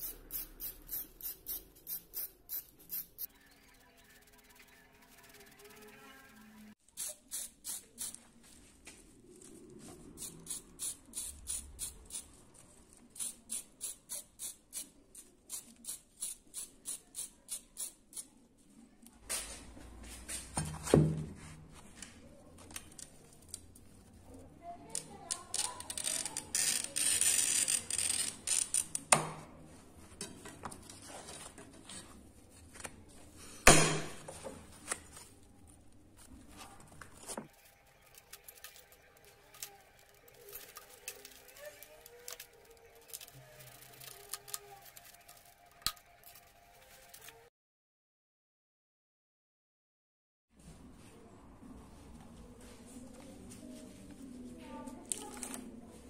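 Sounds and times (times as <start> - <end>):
glass strips cracking off: 37.9 - 46.4.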